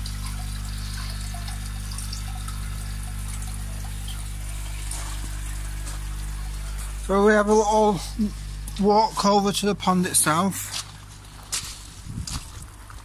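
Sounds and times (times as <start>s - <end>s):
water trickling and splashing: 0.0s - 7.0s, 10.7s - 13.0s
steady low hum: 0.0s - 13.0s.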